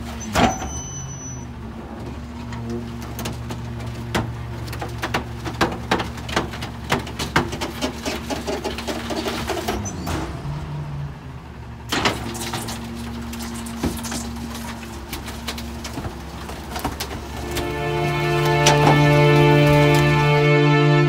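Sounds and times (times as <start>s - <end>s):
garbage truck hydraulic packer: 0.0s - 21.0s
furniture cracking and snapping: 3.0s - 9.7s, 11.9s - 20.5s.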